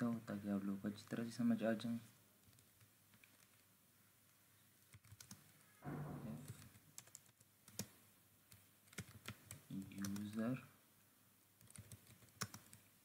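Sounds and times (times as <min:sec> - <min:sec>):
keyboard keystrokes: 0:04.9 - 0:05.5, 0:06.4 - 0:10.4, 0:11.6 - 0:12.8.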